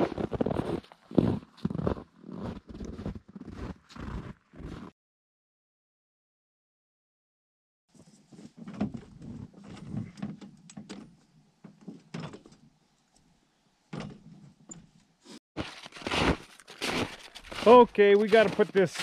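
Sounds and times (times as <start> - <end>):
snowmobile knocks and rattles: 8.4 - 12.6, 15.6 - 19.0.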